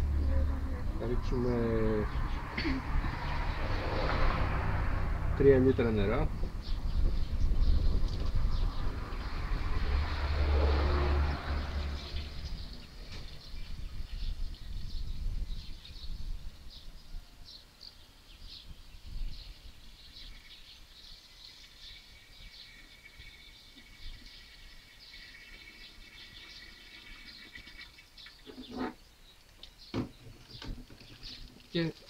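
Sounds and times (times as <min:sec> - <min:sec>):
bird chirps: 0:11.5 - 0:31.6
water trickling into cylinder: 0:20.3 - 0:28.6, 0:30.8 - 0:32.0.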